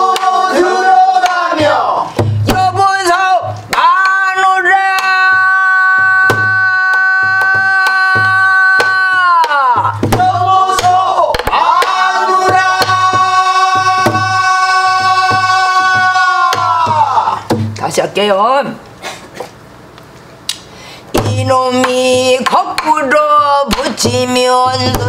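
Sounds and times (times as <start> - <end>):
person singing long sliding notes: 5.0 - 17.4
barrel drum thumps: 5.3 - 17.8, 21.2 - 21.5, 23.7 - 25.0.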